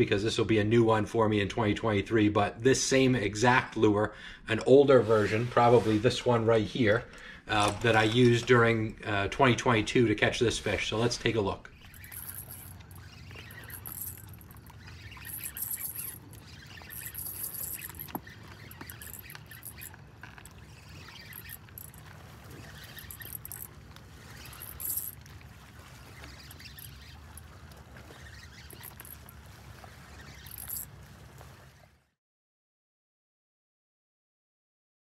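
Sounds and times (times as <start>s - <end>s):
water lapping on shore: 7.4s - 32.1s.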